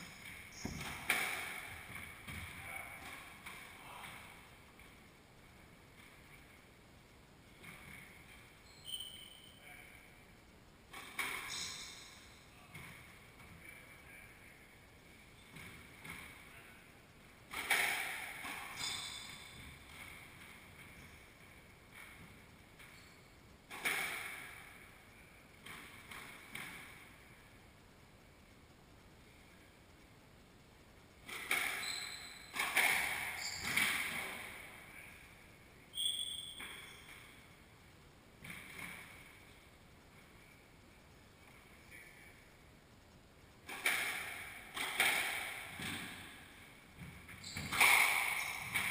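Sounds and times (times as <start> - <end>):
footsteps thudding: 0.0 - 2.6
squash ball hitting walls: 0.0 - 3.7, 10.9 - 11.5, 17.5 - 21.1, 23.7 - 24.8, 31.2 - 31.9, 32.5 - 34.7, 43.7 - 48.9
sneakers squeaking on floor: 0.0 - 4.2, 7.6 - 9.6, 11.2 - 13.0, 18.4 - 21.2, 31.3 - 34.6, 35.9 - 37.4, 47.0 - 48.9.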